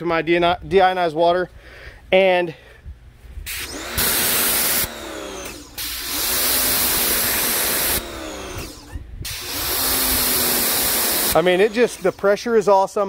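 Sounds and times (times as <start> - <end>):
pump motor whine: 3.5 - 12.6
pressure washer water jet hissing: 3.5 - 13.0.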